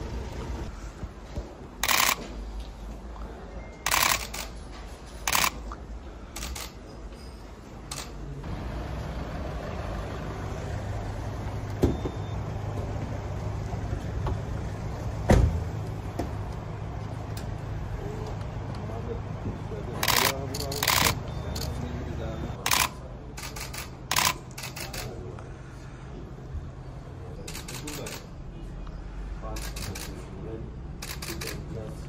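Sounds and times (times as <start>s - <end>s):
camera shutters clicking: 1.8s - 2.3s, 3.9s - 4.5s, 5.3s - 5.6s, 20.0s - 21.8s, 22.7s - 25.1s, 31.0s - 31.6s
van engine running: 8.4s - 22.5s.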